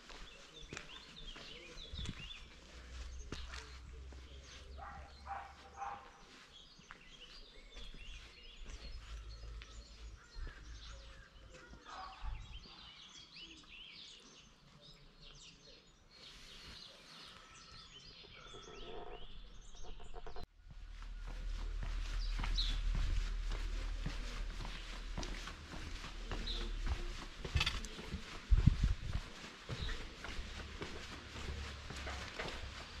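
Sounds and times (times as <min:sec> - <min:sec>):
small birds chirping: 0:00.0 - 0:33.0
low rumble: 0:19.6 - 0:29.1.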